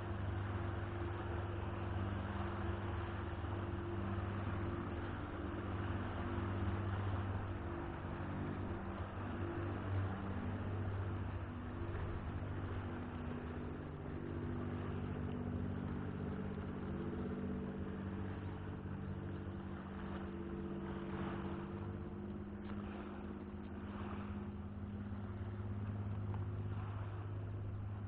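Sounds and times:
engine humming steadily: 0:00.0 - 0:28.0.

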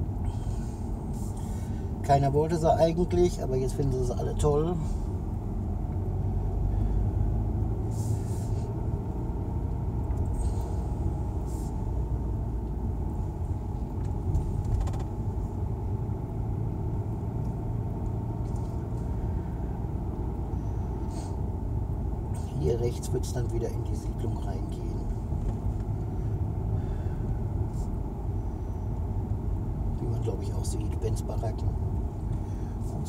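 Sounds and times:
car engine and tyres rumbling: 0:00.0 - 0:33.0.

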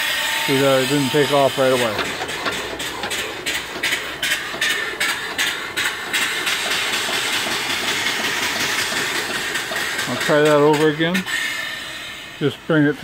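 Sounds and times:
steam engine puffing: 0:00.0 - 0:13.0
steady hiss of escaping steam: 0:04.2 - 0:12.8.

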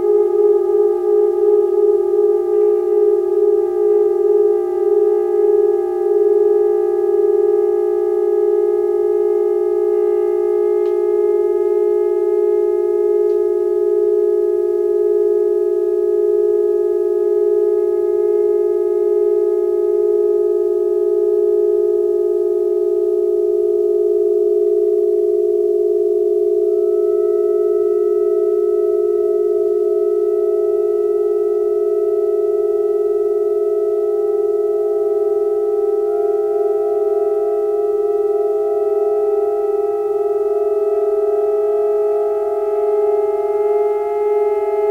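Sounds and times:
saxophone drone chord: 0:00.0 - 0:13.8, 0:35.0 - 0:44.9.

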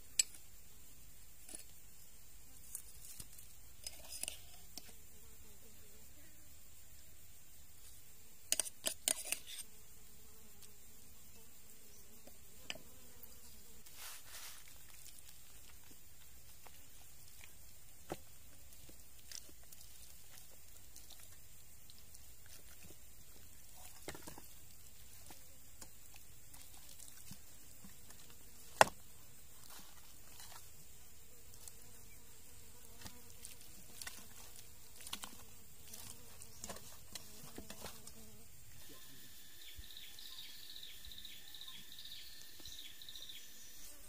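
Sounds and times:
high insect drone with chirps: 0:00.0 - 0:44.0
insects buzzing: 0:00.0 - 0:44.0
hands rubbing meat: 0:13.8 - 0:15.8.

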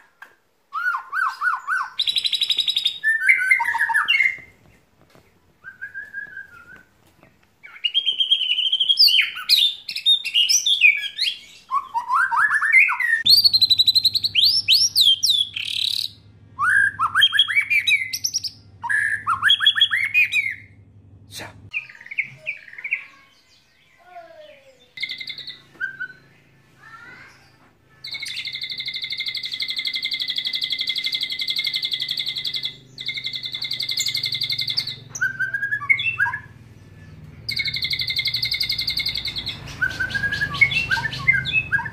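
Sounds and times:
bird singing whistled phrases: 0:00.7 - 0:04.5, 0:05.6 - 0:06.9, 0:07.6 - 0:20.7, 0:24.7 - 0:27.3, 0:28.0 - 0:36.6, 0:37.5 - 0:41.9
low steady hum: 0:13.3 - 0:21.8.

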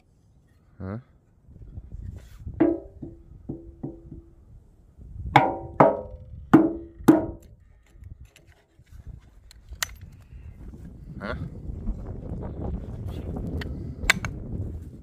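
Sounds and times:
hatchet striking wooden board: 0:02.6 - 0:04.3, 0:05.4 - 0:07.5.

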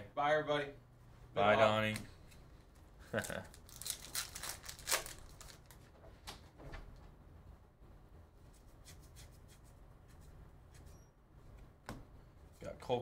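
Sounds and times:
low steady hum: 0:00.0 - 0:13.0
wrapper crinkling: 0:03.2 - 0:05.8.

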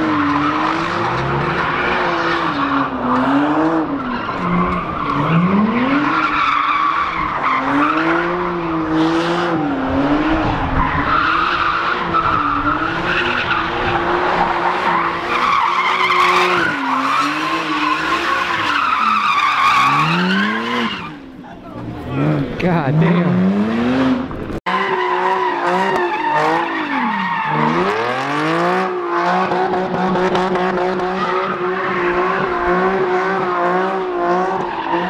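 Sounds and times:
car engine revving high: 0:00.0 - 0:35.0
tyres screeching: 0:10.8 - 0:23.6.

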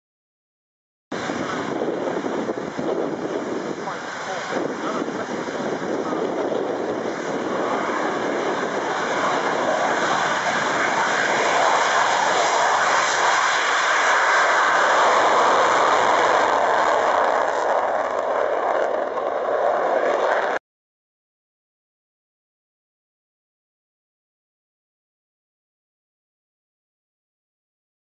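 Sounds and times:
jet engine roar: 0:01.1 - 0:20.6.

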